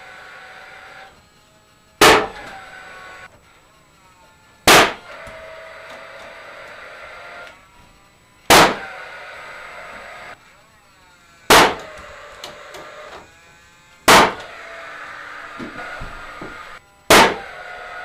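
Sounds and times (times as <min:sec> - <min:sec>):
nail gun firing bang: 0:02.0 - 0:02.6, 0:04.7 - 0:05.2, 0:08.5 - 0:08.9, 0:11.5 - 0:12.1, 0:14.0 - 0:14.6, 0:17.1 - 0:17.6
nail gun hum: 0:02.0 - 0:03.3, 0:04.6 - 0:07.9, 0:08.5 - 0:10.4, 0:11.5 - 0:13.3, 0:14.0 - 0:18.0.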